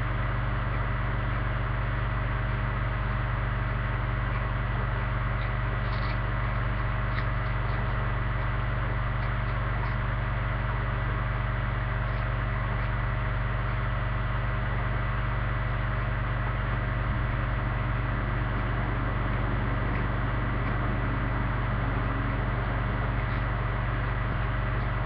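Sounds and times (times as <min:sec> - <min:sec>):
low hum with hiss: 0:00.0 - 0:25.0
steady tones: 0:16.0 - 0:25.0.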